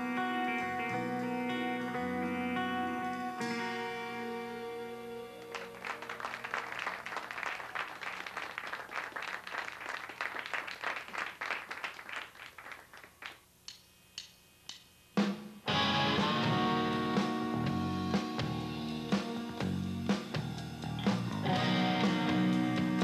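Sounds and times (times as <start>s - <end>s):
electric guitar chord ringing: 0.0s - 6.6s, 15.7s - 19.8s, 21.5s - 23.0s
audience applauding: 5.3s - 13.4s.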